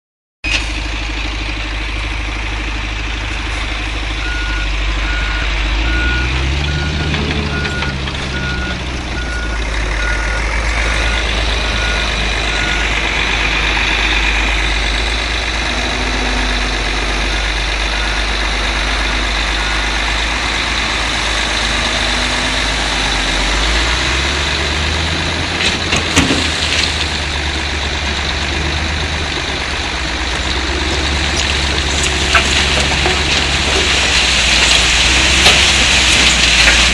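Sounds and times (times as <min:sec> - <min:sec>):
heavy diesel engines running: 0:00.4 - 0:36.9
reversing alarm beeping: 0:04.2 - 0:13.6, 0:15.9 - 0:20.7.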